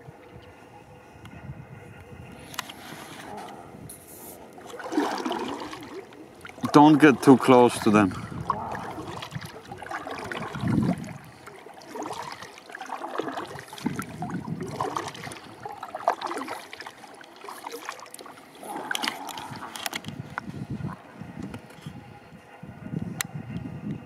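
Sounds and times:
water lapping around hull: 0.0s - 24.0s
paddle strokes splashing: 2.6s - 20.1s.

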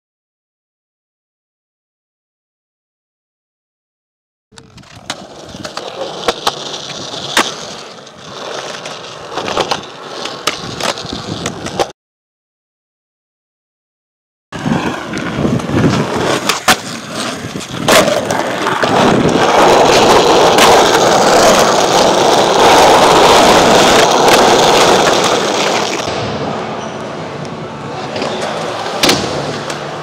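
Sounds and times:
skateboard clacks: 4.6s - 11.9s, 14.6s - 26.2s, 27.4s - 30.0s
skateboard wheels rolling on asphalt: 4.6s - 11.9s, 14.6s - 30.0s.

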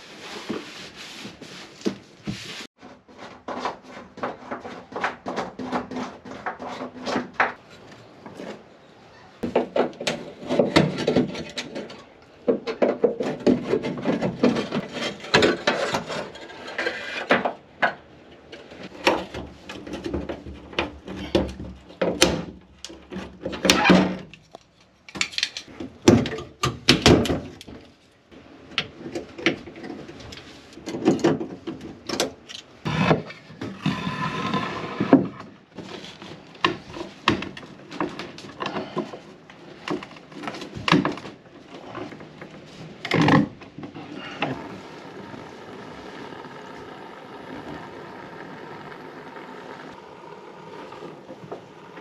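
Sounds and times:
scraping and rubbing on plastic: 0.0s - 8.7s, 32.8s - 37.2s.

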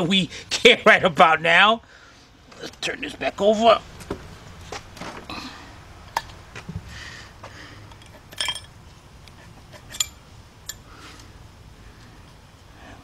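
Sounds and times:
metallic clinks and knocks: 7.9s - 10.8s.

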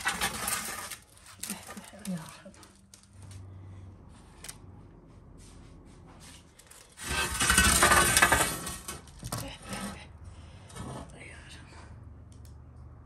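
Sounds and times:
metal tray scraping brick floor: 0.0s - 2.6s, 6.7s - 11.2s.

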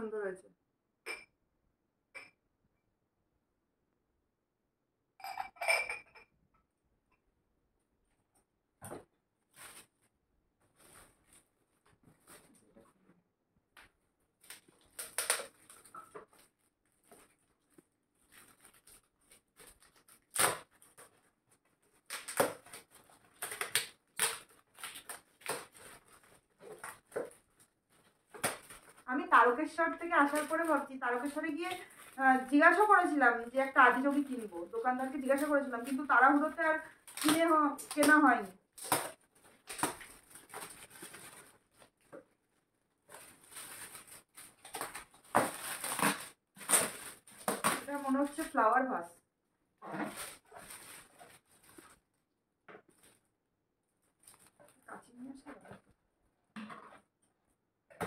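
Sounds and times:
foil wrapping crinkling: 14.4s - 48.6s, 50.0s - 52.1s.

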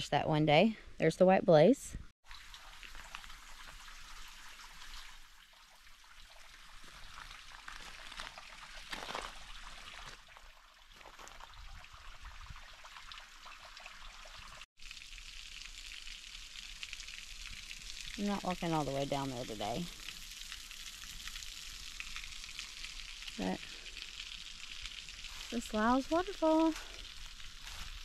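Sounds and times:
small water drips: 2.2s - 28.0s
water trickling over rocks: 2.2s - 28.0s.

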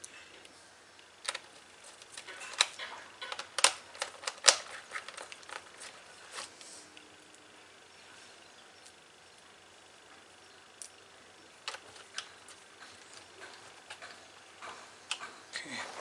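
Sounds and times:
screwdriver clicking into plastic: 2.2s - 5.7s.

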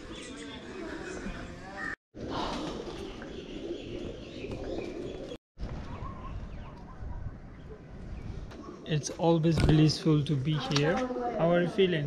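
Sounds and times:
birds cooing: 0.0s - 7.0s
outdoor background noise: 0.0s - 12.0s.

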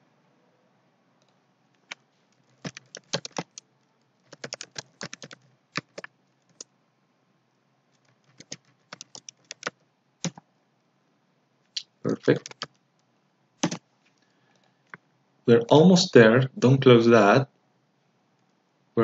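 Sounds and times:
typing on keyboard: 1.8s - 6.7s, 8.0s - 10.4s, 12.1s - 12.8s.

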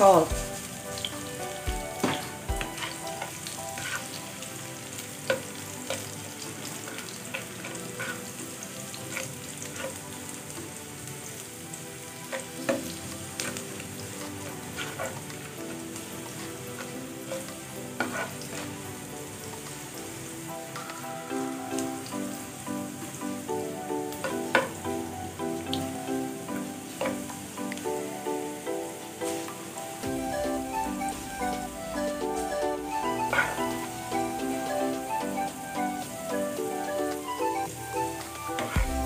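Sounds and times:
garlic sizzling in hot oil: 0.0s - 39.0s
plastic spatula scraping pan: 16.8s - 18.6s.

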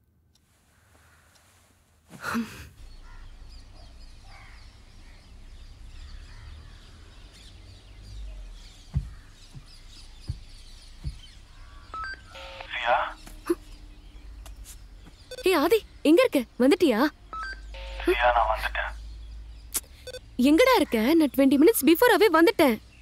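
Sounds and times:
birds chirping: 2.2s - 23.0s
soft low thumps: 8.2s - 11.7s.

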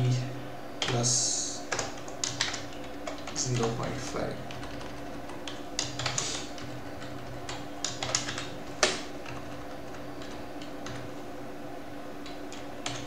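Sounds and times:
keyboard typing: 1.7s - 11.2s, 12.2s - 13.0s.

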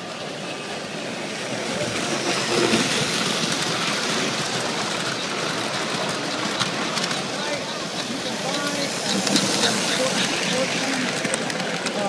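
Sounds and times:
model train wheels rumbling on track: 0.0s - 12.0s.

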